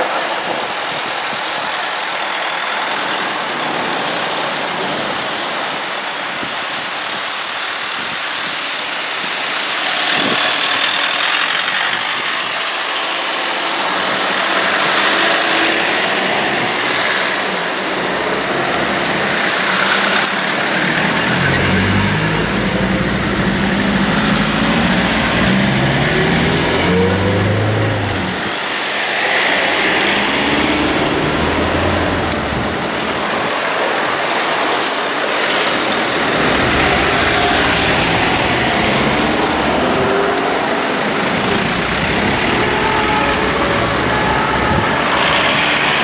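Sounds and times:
vans driving past: 9.4 - 46.0.

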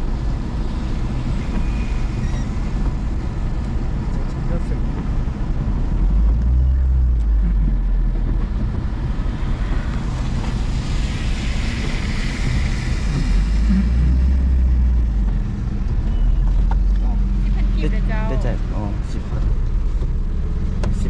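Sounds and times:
hiss: 10.0 - 14.9.

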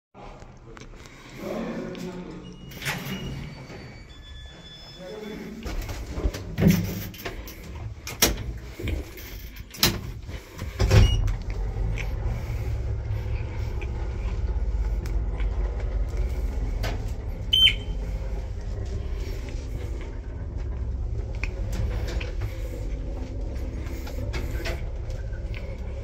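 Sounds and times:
elevator low rumble: 0.2 - 26.0
elevator heavy jolt: 5.6 - 26.0
short high beep: 17.5 - 17.9.

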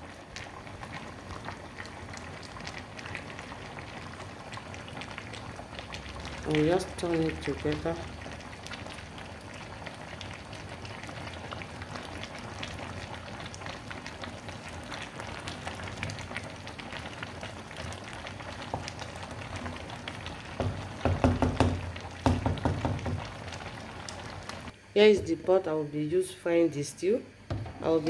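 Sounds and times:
thick sauce boiling: 0.0 - 25.1.

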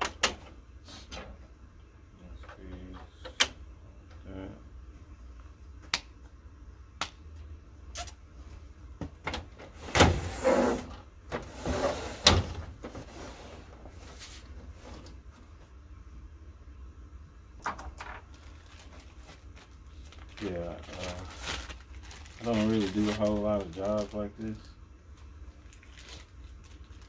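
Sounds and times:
plastic sliding scrape: 10.2 - 10.9.

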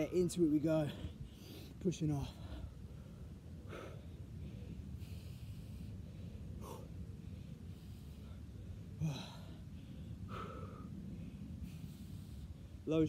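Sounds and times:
man breathing hard: 0.7 - 12.8.

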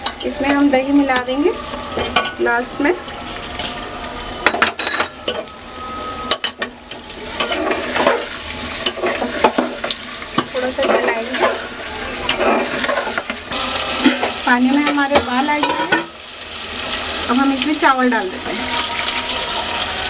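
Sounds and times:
oil sizzling: 0.0 - 20.0
metal spatula scraping a pot: 7.3 - 16.1.

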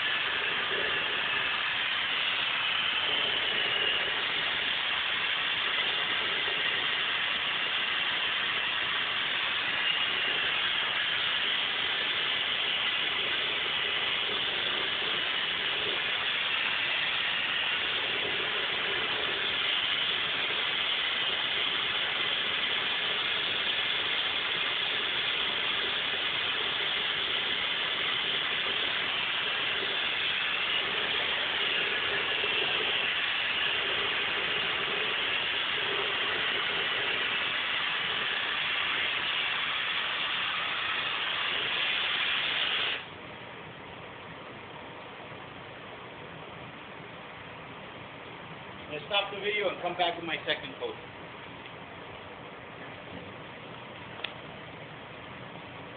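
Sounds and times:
paint spray gun hissing: 0.0 - 43.1
ventilation airflow rush: 0.0 - 55.9.

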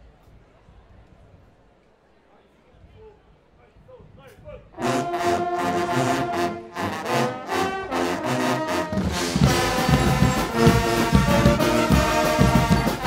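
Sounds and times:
brass band playing: 4.7 - 13.0
drums: 8.6 - 13.0.

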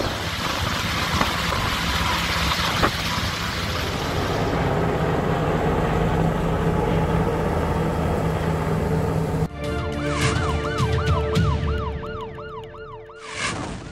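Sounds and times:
helicopter rotor and turbine: 0.0 - 9.5
fast yelping siren: 10.2 - 13.4.

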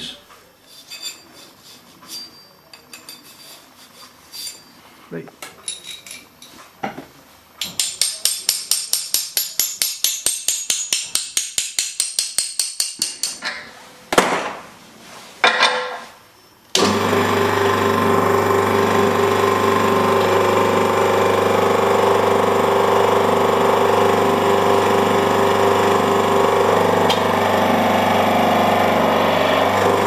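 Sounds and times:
hydraulic press pump humming: 16.8 - 30.0.

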